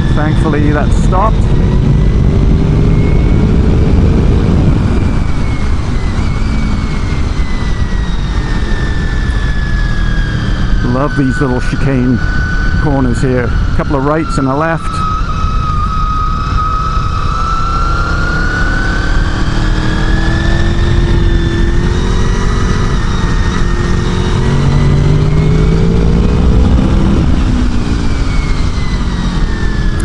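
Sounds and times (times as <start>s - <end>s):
motorcycle engine accelerating: 0.0s - 30.0s
wind rushing on microphone: 0.0s - 30.0s.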